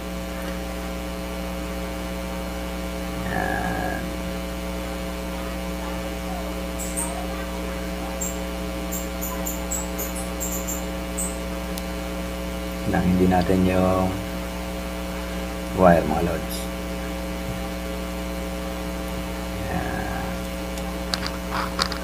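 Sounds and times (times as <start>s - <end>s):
electrical mains hum: 0.0s - 22.0s
very high chirps: 6.4s - 11.5s
brief tone: 6.7s - 11.5s.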